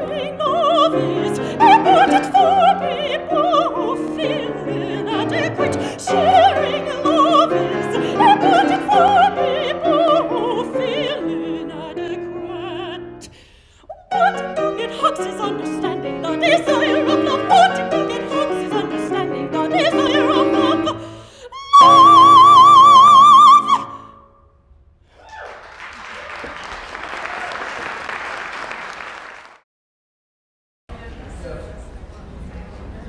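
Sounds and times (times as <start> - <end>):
piano accompaniment: 0.0 - 13.4, 14.1 - 24.1
soprano singing: 0.0 - 24.4
audience applause: 25.2 - 29.6.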